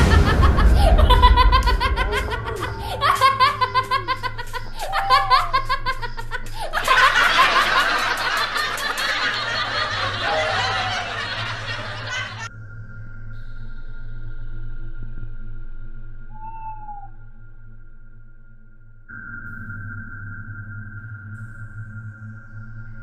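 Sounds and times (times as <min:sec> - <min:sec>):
people laughing: 0:00.0 - 0:12.5.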